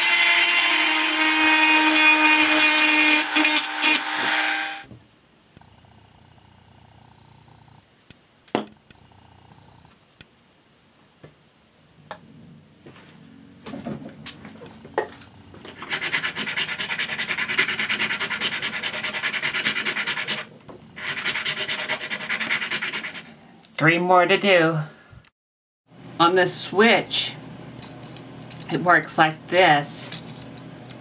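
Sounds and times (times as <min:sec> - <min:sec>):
sandpaper rubbing on plastic: 0:15.7 - 0:23.4.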